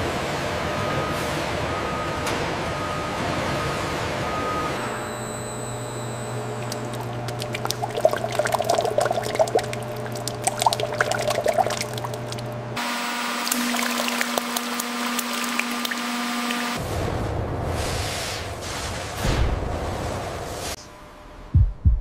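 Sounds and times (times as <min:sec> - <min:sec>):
steady machine hum: 0:04.8 - 0:16.8
syrup pouring and splashing: 0:06.6 - 0:12.5, 0:13.5 - 0:16.7.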